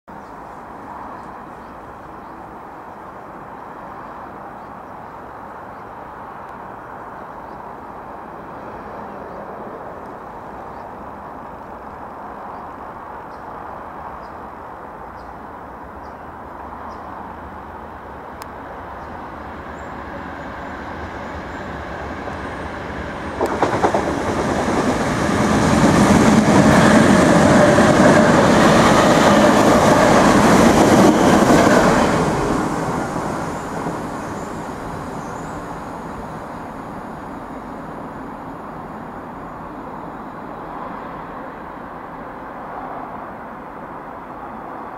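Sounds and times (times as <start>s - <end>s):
train rumble: 15.0s - 44.9s
rush of wheels on rail: 16.6s - 44.9s.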